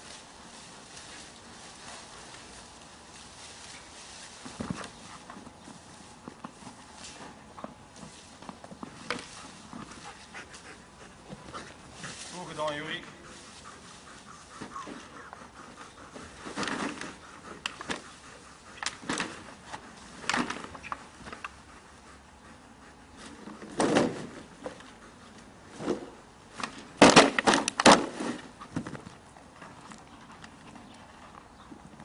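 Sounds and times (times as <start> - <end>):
sacks thumping on grass: 27.0 - 28.5.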